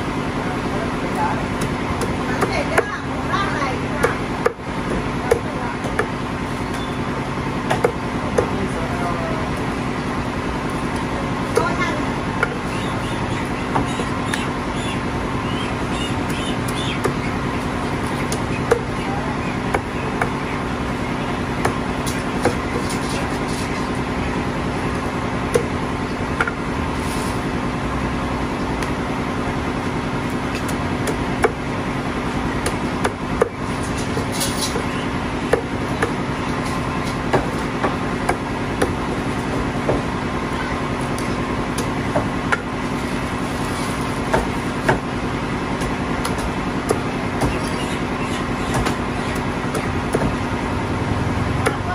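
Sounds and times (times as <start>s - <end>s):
steady background hum: 0.0s - 51.9s
cleaver chopping on wooden block: 4.0s - 4.6s, 7.7s - 8.6s, 18.3s - 18.9s, 19.7s - 20.4s, 21.6s - 23.0s, 25.5s - 25.7s, 26.4s - 26.6s, 30.5s - 31.6s, 32.6s - 34.3s, 35.5s - 36.2s, 37.3s - 39.0s, 44.3s - 45.1s, 45.8s - 47.7s, 48.7s - 49.0s, 49.7s - 50.4s, 51.6s - 51.9s.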